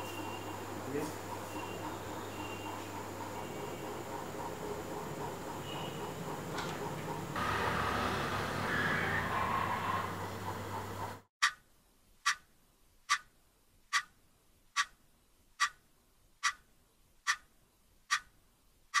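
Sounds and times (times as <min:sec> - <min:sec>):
low hum: 0:05.1 - 0:11.3
clock ticking: 0:12.2 - 0:13.3, 0:13.9 - 0:14.1, 0:14.7 - 0:15.0, 0:15.6 - 0:15.8, 0:16.4 - 0:18.3.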